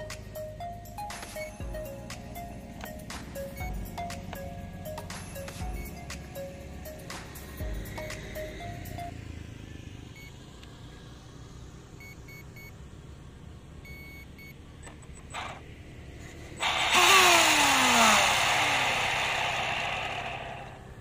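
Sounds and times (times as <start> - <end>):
speed controller beeps: 0.6 - 1.9, 2.8 - 6.5, 10.1 - 10.4, 12.0 - 12.7, 13.8 - 14.6
electric motor and propeller spinning: 14.8 - 21.0.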